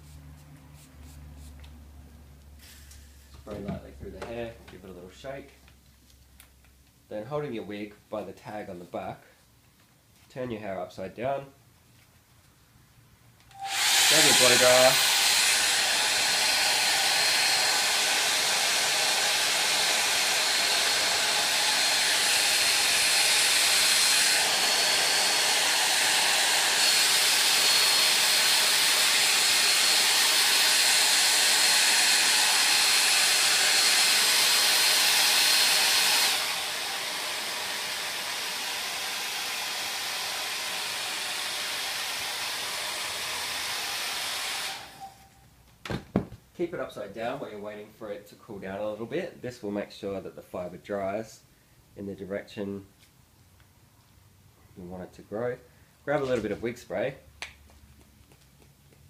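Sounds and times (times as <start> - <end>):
hair dryer running: 13.5 - 45.3.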